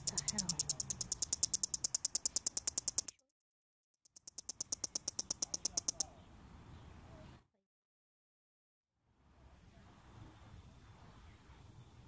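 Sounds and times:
cicada clicking: 0:00.0 - 0:03.2, 0:04.2 - 0:06.1.

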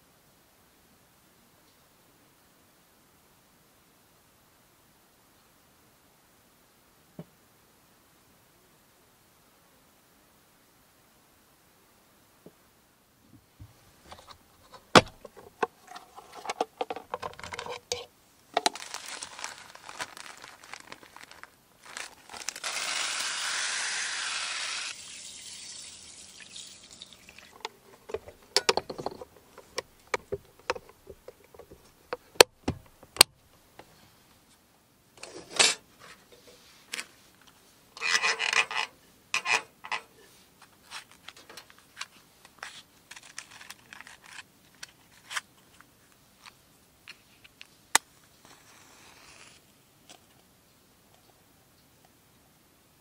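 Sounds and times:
oil lantern clicks and scraping: 0:14.1 - 0:18.7, 0:27.5 - 0:33.3, 0:38.0 - 0:40.1
water pouring: 0:24.9 - 0:28.0.

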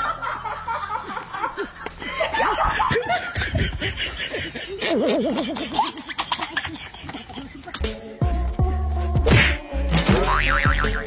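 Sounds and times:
people laughing: 0:00.0 - 0:08.0.

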